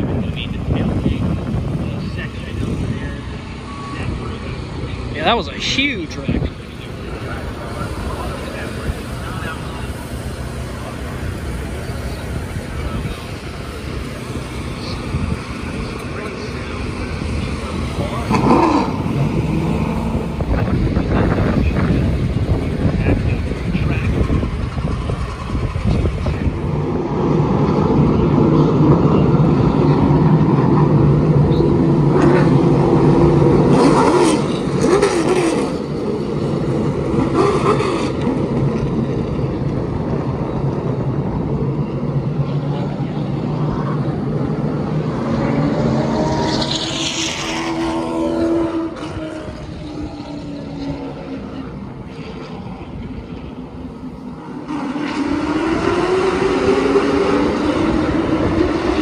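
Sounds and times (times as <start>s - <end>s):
stock car engines racing: 0.0s - 59.0s.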